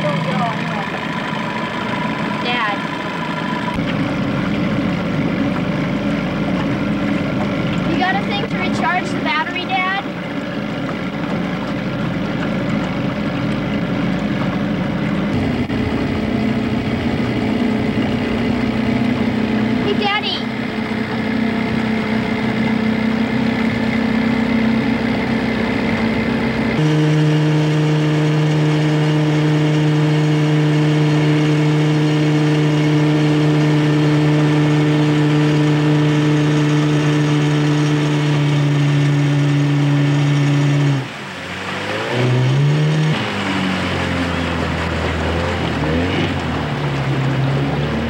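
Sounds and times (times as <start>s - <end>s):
outboard motor running: 0.0s - 48.0s.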